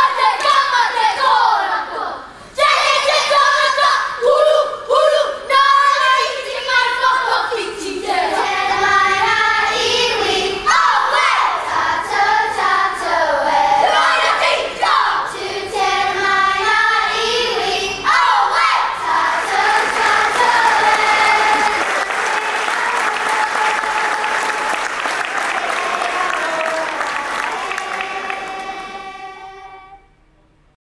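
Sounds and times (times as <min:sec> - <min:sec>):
children singing together: 0:00.0 - 0:30.1
applause: 0:19.3 - 0:29.1.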